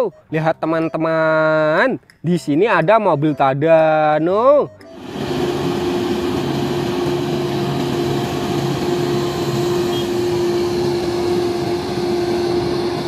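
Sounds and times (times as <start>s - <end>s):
crane engine droning: 4.9s - 13.0s.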